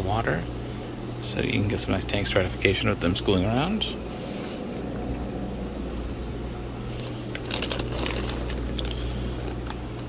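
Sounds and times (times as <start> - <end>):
steady low hum: 0.0 - 10.0
plastic bags crinkling: 6.9 - 9.8.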